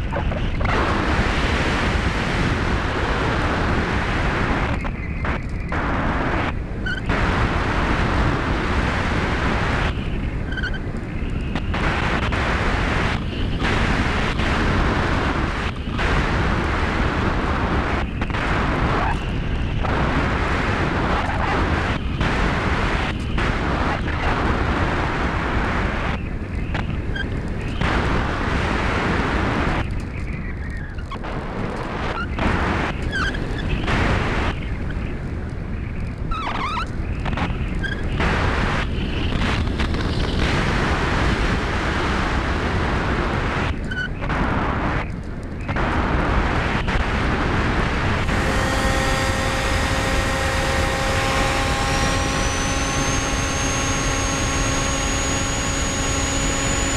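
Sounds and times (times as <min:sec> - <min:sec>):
wind buffeting camera: 0:00.0 - 0:56.9
propeller and motor whine: 0:44.8 - 0:56.9.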